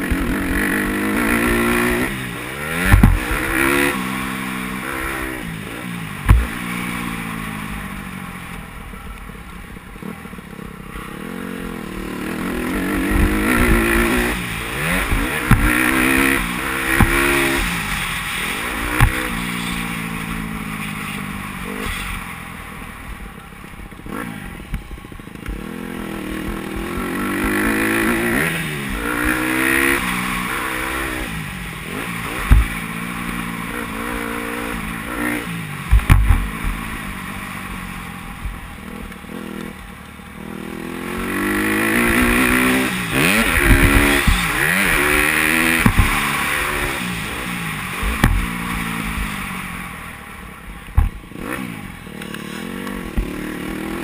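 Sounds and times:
dirt bike engine revving: 0:00.0 - 0:08.2, 0:10.0 - 0:23.2, 0:24.0 - 0:54.0
sharp knocks: 0:02.9 - 0:03.3, 0:35.9 - 0:36.5, 0:45.8 - 0:46.2, 0:48.0 - 0:48.5.

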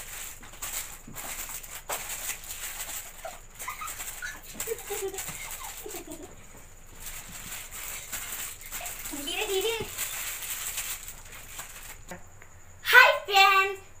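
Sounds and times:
plastic wrappers crinkling: 0:00.0 - 0:12.1
stifled giggles: 0:03.2 - 0:06.6.

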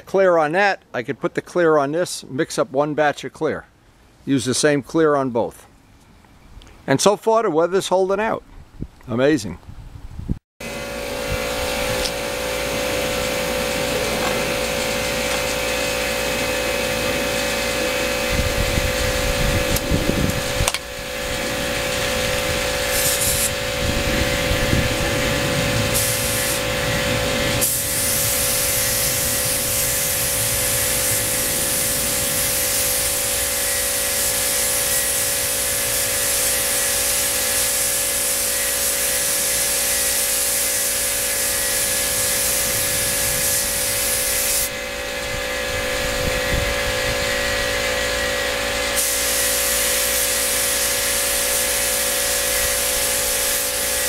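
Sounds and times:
air compressor humming: 0:10.6 - 0:54.0
spray gun hissing: 0:11.1 - 0:44.9, 0:48.9 - 0:54.0.

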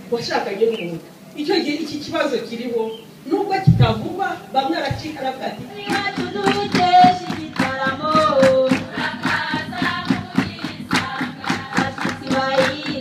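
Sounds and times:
hand-clapping beat: 0:05.6 - 0:13.0
women singing in chorus: 0:05.6 - 0:13.0.

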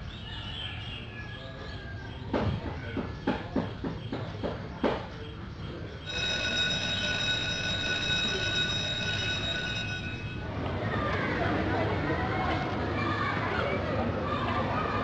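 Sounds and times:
hand hitting alarm clock: 0:06.1 - 0:10.5
alarm clock bell ringing: 0:06.1 - 0:10.7.

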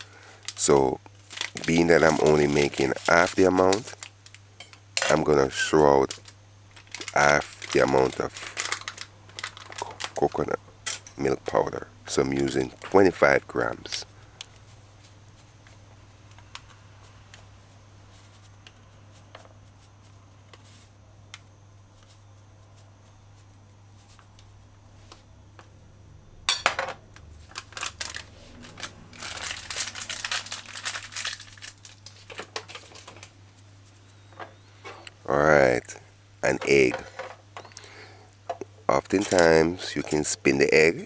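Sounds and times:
plastic packet crinkling: 0:00.0 - 0:04.4, 0:05.0 - 0:10.6, 0:27.4 - 0:33.3
low steady hum: 0:00.0 - 0:41.0.

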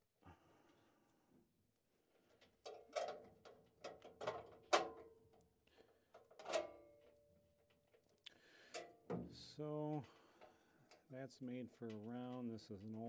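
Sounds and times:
metal clinks and knocks: 0:02.2 - 0:05.4, 0:06.0 - 0:09.4.

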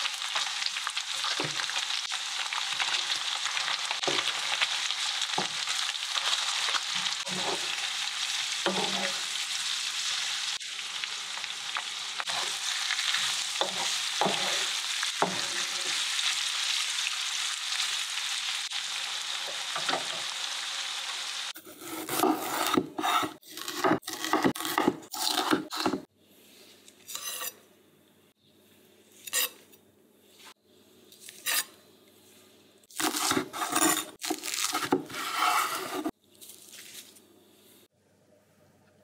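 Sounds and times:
food sizzling in frying pan: 0:00.0 - 0:21.6.

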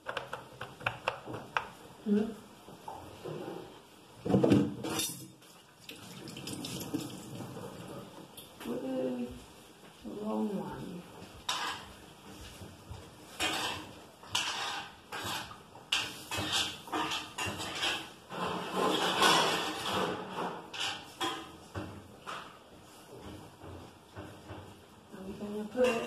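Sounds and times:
dishes and pans clattering: 0:04.2 - 0:05.5, 0:11.4 - 0:12.0, 0:13.3 - 0:22.6, 0:25.7 - 0:26.0.

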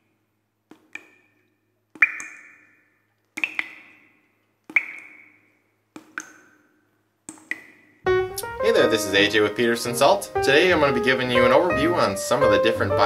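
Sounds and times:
bright pinging music notes: 0:08.1 - 0:13.0.

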